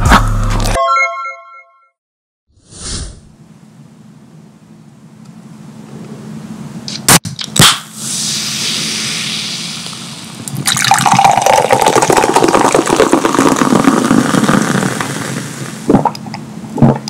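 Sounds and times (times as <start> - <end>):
soda fizzing: 8.0 - 16.2
soda pouring into a glass: 8.2 - 15.9.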